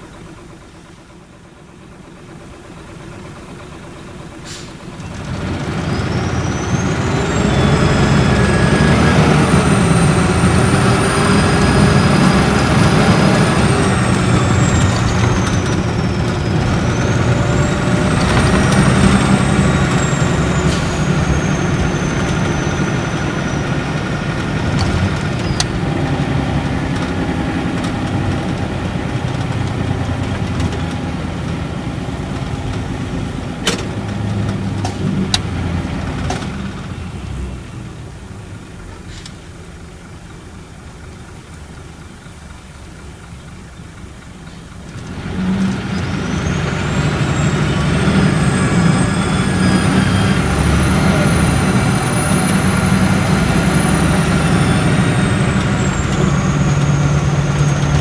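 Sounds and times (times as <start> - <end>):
diesel engine droning: 0.0 - 58.0
turbocharger whistle: 5.5 - 28.3, 45.2 - 58.0.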